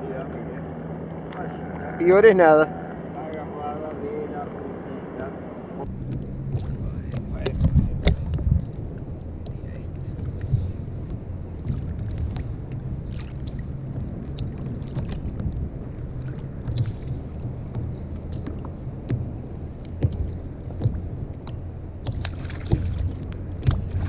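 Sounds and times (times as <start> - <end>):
water slapping kayak hull: 5.8 - 24.0
wind on microphone: 5.8 - 24.0
fish splashing at surface: 22.0 - 24.0.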